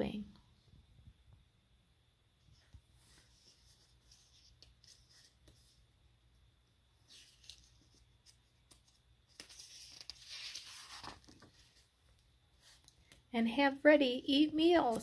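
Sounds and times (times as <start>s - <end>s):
book pages rustling: 2.5s - 5.8s, 7.0s - 13.2s.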